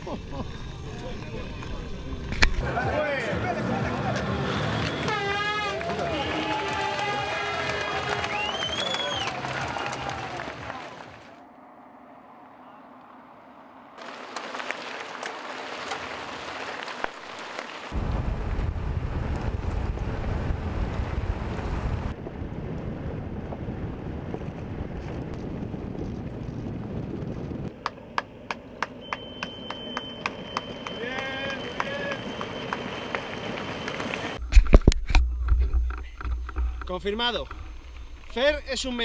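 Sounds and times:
wind noise on microphone: 18.0s - 27.7s
low rumble of wind buffeting: 18.0s - 28.1s.

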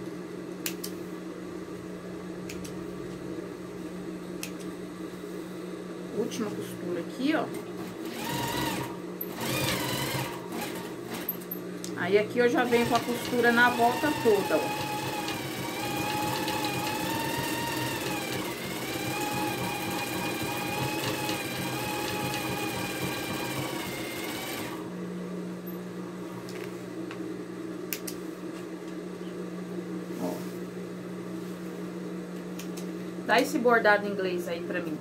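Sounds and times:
steady low hum: 0.0s - 21.9s, 22.5s - 35.0s
sewing machine stitching: 7.8s - 11.3s, 12.6s - 24.8s.

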